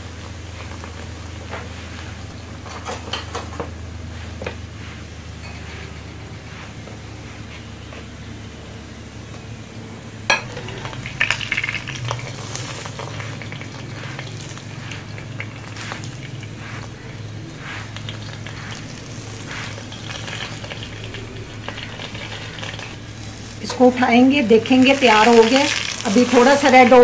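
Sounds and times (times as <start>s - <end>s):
flatbread sizzling on a pan: 0.0s - 9.2s, 10.2s - 27.0s
metal spatula scraping pan: 12.3s - 21.1s.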